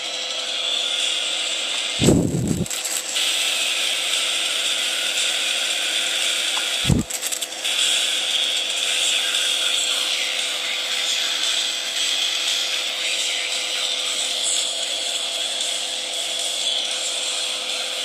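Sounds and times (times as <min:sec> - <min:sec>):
plasma arc high-pitched hiss: 0:00.5 - 0:13.1.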